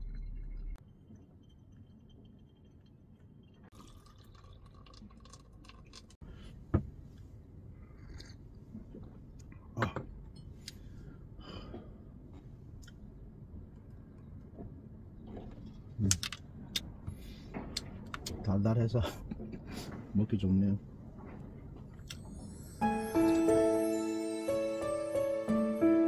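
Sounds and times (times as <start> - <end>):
hot water pouring: 0.9 - 6.2.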